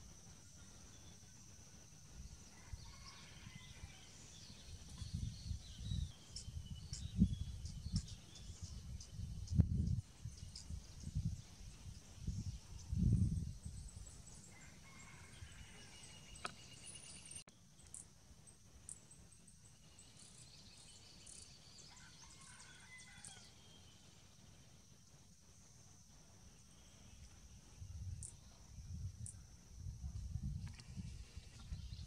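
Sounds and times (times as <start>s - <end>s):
wind rumble on microphone: 1.4s - 16.5s, 25.1s - 32.0s.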